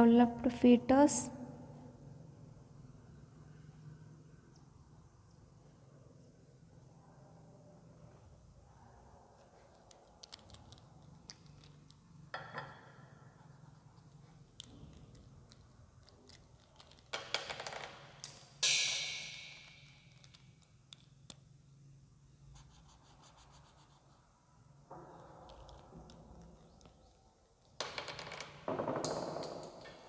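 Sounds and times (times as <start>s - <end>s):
pens clicking and rattling: 9.7s - 12.2s, 14.0s - 21.5s, 25.5s - 28.5s.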